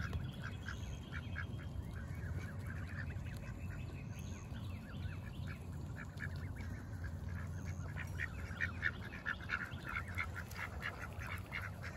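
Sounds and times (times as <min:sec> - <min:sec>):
ducks quacking: 0:00.0 - 0:11.9
steady low hum: 0:00.0 - 0:11.9
geese honking: 0:05.3 - 0:11.9.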